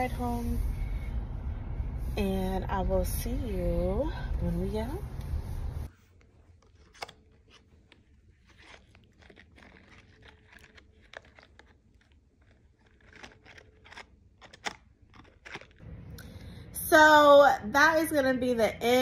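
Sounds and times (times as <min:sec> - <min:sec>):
cardboard box crinkling: 0:06.5 - 0:15.8.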